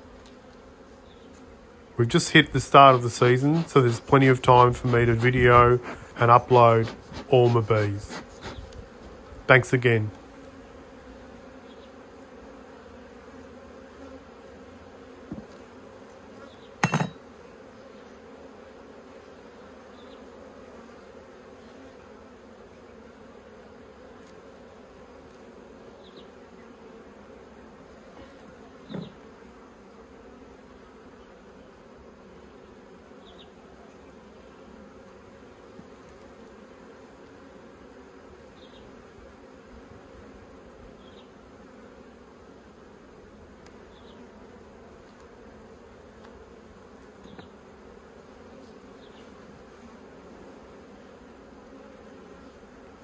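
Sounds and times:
honeybees buzzing: 0.0 - 53.0
wooden hive bars knocking: 28.9 - 29.2.

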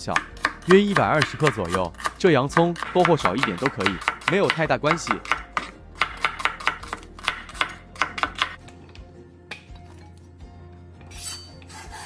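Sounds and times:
cleaver chopping onion on board: 0.0 - 8.6.

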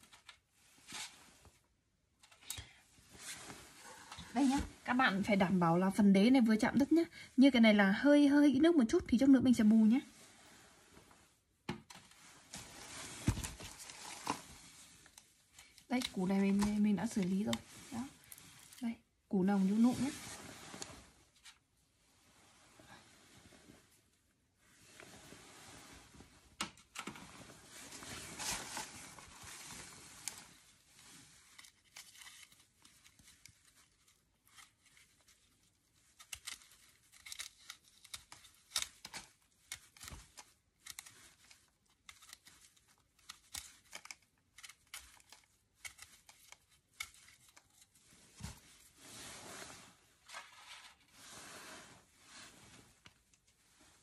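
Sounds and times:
knife scraping papery bulb skin: 36.0 - 47.6.

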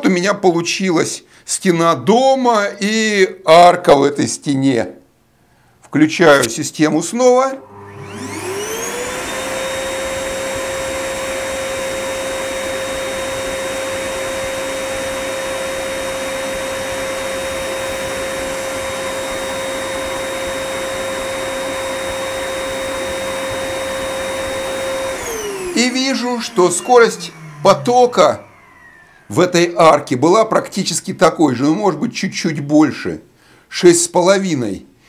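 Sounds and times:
electric air blower running: 7.6 - 30.3.

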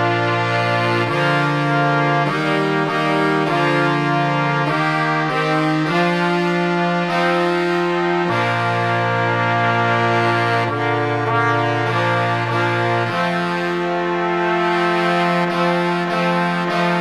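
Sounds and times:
brass playing in harmony: 0.0 - 17.0.

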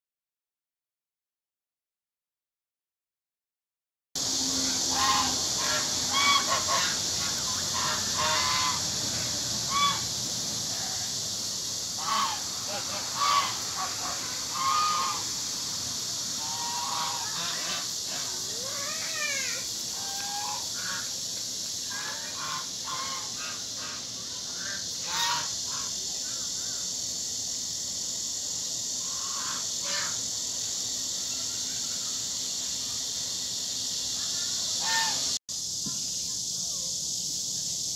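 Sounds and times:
steady high hiss: 4.2 - 37.9
geese honking: 4.5 - 15.4, 16.4 - 18.9, 19.8 - 26.8, 29.0 - 30.3, 34.2 - 35.4.

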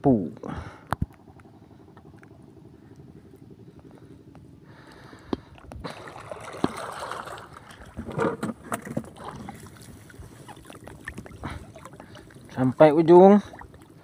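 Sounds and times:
seawater splashing and sloshing: 5.8 - 14.0.

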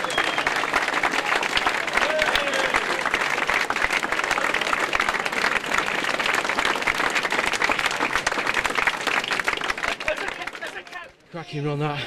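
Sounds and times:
crowd clapping: 0.0 - 11.3.

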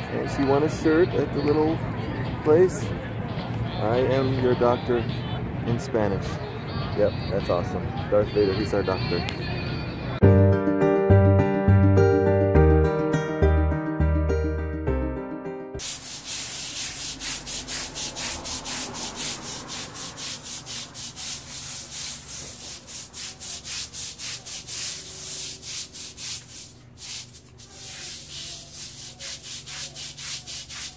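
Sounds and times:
brush scrubbing wet concrete: 15.8 - 30.9.

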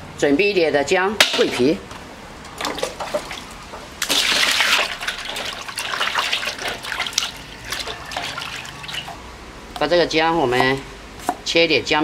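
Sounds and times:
water splashing and sloshing: 2.4 - 9.3
water pouring into steel basin: 4.0 - 9.2.

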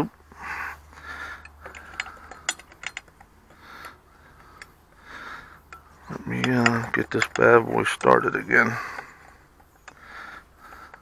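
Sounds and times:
breathing close to microphone: 0.3 - 2.5, 3.5 - 6.1, 8.7 - 11.0
small metal clicks and clinks: 1.4 - 5.0, 5.6 - 10.0.

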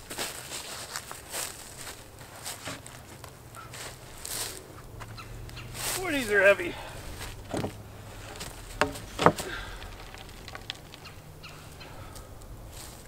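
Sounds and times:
footsteps in dry leaves: 0.0 - 13.0
wooden knocks and thumps: 7.1 - 11.6.

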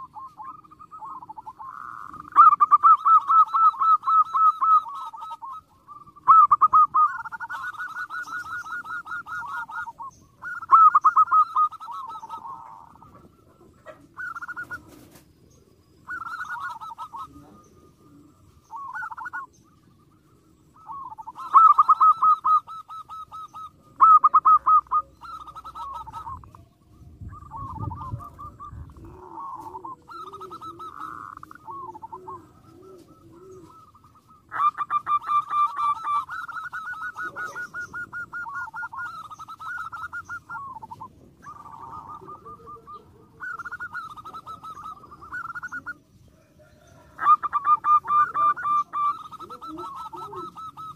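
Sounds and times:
doves cooing: 0.0 - 50.9
lower slower cooing: 20.4 - 50.9.

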